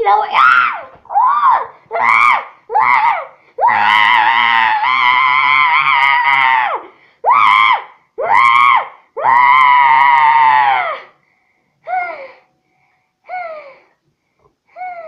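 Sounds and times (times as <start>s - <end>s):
child screaming: 0.2s - 11.1s.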